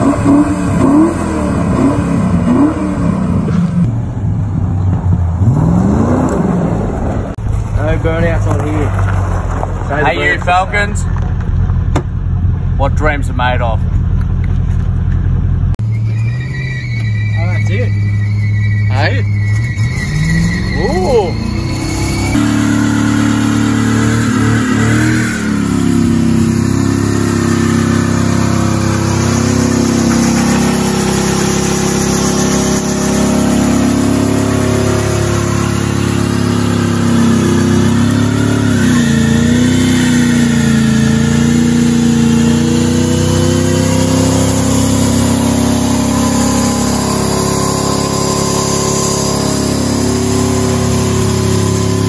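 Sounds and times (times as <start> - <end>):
car engine revving high: 0.0 - 3.9, 15.9 - 52.0.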